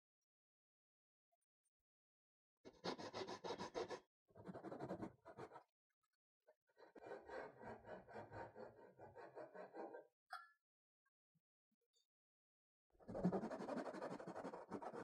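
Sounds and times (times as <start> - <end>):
hand saw cutting wood: 2.7 - 5.4, 6.8 - 10.0, 13.2 - 15.0.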